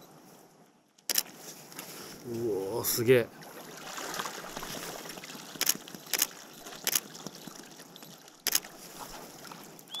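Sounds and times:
water washing around kayak: 3.3s - 9.9s
short sharp splashes or knocks: 3.4s - 9.6s.

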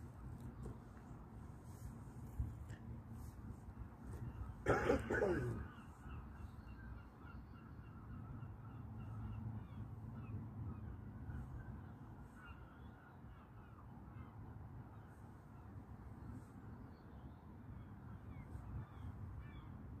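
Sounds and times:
faint bird calls: 4.0s - 15.2s.

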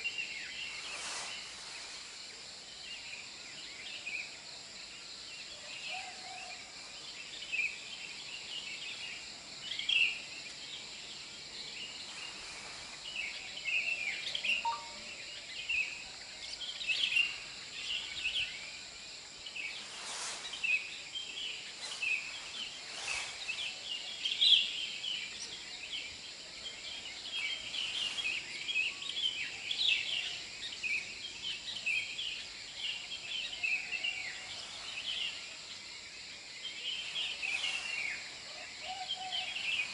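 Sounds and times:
chorus of small animal chirps: 13.8s - 15.4s.

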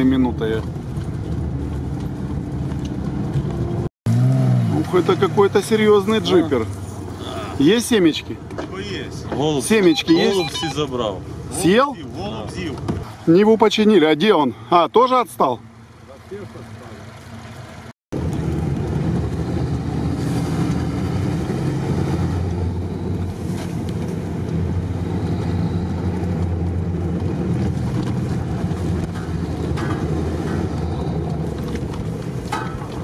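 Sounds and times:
tyre noise on dirt track: 0.0s - 7.7s, 17.6s - 33.0s
vehicle engine drone: 0.0s - 13.3s, 15.5s - 33.0s.

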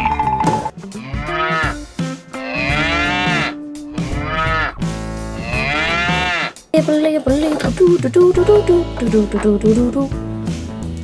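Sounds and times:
cow mooing: 0.9s - 4.8s, 5.4s - 6.6s.

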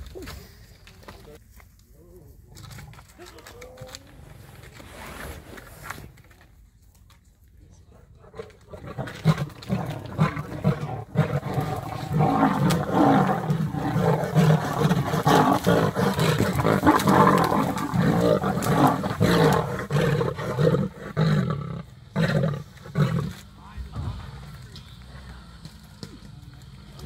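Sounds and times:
lions roaring and snarling: 8.1s - 24.6s.

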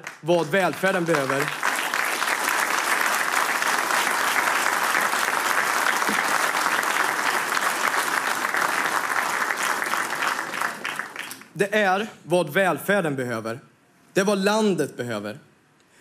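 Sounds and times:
large audience applauding: 0.0s - 11.6s.

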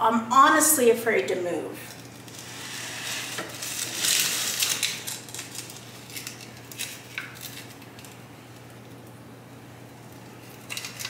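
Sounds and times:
pot scraping on shelf: 2.4s - 5.0s.

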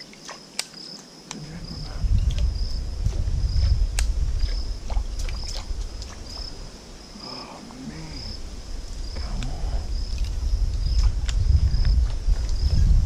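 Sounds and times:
insect chirping: 0.0s - 13.0s
loud low rumble: 1.4s - 6.0s, 7.8s - 13.0s.

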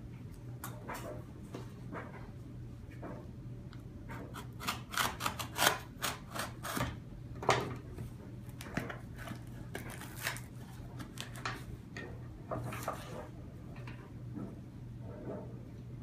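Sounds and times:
cardboard box tape ripping: 4.6s - 6.9s.

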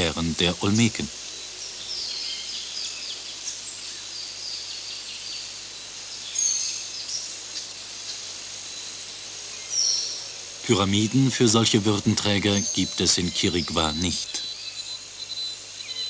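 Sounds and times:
high insect drone: 0.0s - 16.0s
high bird chirps: 9.6s - 16.0s.

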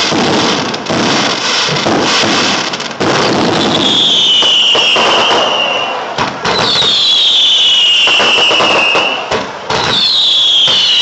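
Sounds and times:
firework bangs: 0.0s - 11.0s
firework crackling: 0.0s - 11.0s
firework whistles gliding down: 3.0s - 11.0s.

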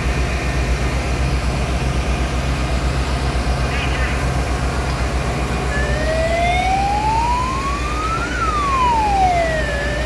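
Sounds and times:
steady low drone: 0.0s - 10.0s
emergency vehicle siren wailing: 5.6s - 10.0s.

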